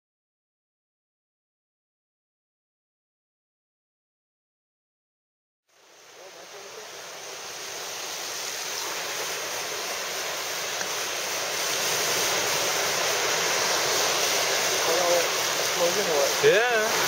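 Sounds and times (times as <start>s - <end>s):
ocean waves breaking on beach: 5.8s - 17.0s.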